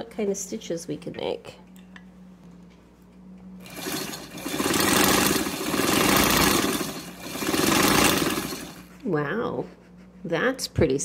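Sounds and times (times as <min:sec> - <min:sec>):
sewing machine stitching: 0:03.6 - 0:08.9.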